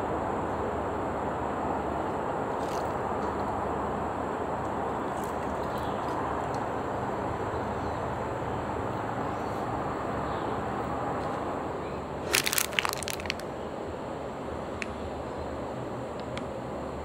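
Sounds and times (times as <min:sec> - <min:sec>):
sharp crackling: 0:12.2 - 0:13.5.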